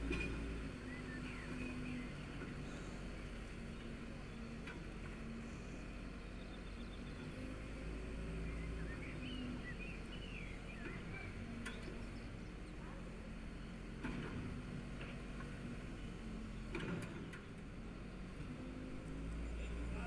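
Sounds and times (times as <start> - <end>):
heavy machinery engine rumble: 0.0 - 20.0
bird chirps: 8.4 - 12.3.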